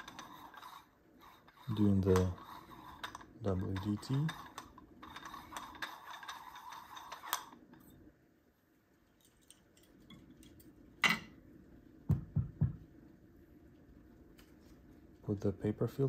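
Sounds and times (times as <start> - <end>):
needle tool stirring coffee grounds: 0.0 - 7.9.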